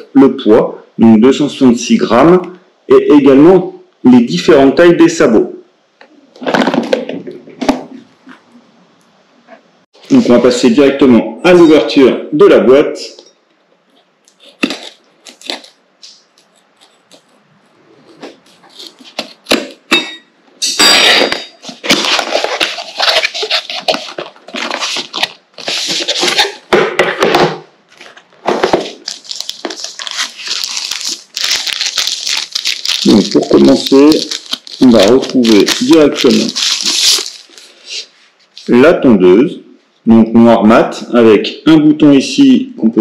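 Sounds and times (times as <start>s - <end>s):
cardboard scraping and tearing: 21.6s - 26.6s.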